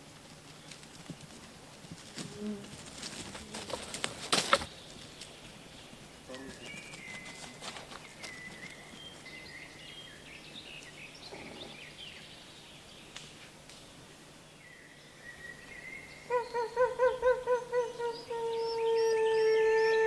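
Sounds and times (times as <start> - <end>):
wolf howling: 16.3 - 20.0.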